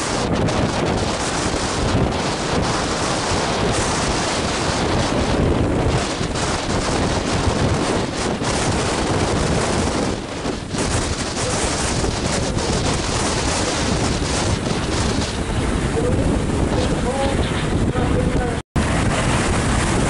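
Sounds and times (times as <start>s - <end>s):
jet engine roar: 0.0s - 20.0s
wind buffeting microphone: 0.0s - 20.0s.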